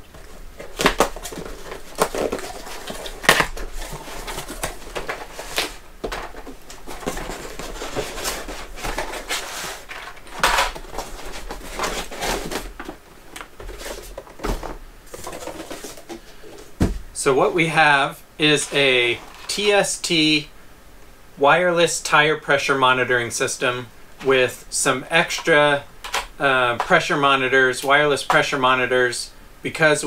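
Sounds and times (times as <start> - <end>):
cardboard box being unpacked: 0.1 - 16.9.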